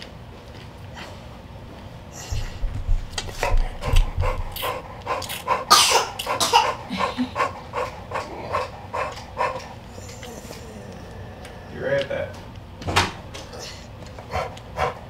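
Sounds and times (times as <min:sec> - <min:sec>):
low bumps: 0:02.3 - 0:05.2
dog panting heavily: 0:02.3 - 0:10.7, 0:14.1 - 0:15.0.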